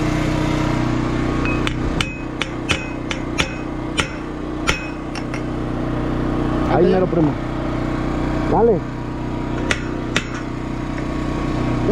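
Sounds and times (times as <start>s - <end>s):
engine drone: 0.0s - 11.9s
hammer striking steel pipe: 1.4s - 5.6s, 9.6s - 10.6s.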